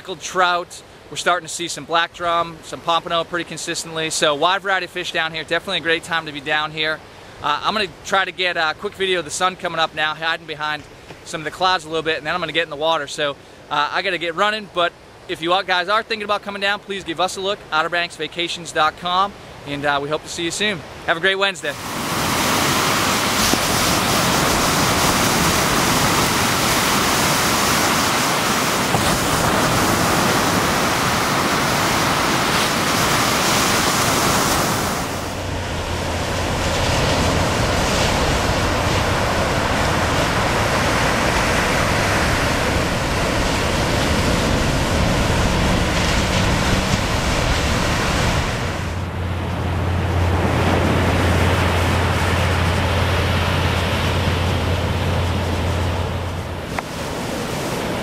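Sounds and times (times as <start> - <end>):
ocean surf breaking: 0.0 - 58.0
wind rumbling on microphone: 21.8 - 58.0.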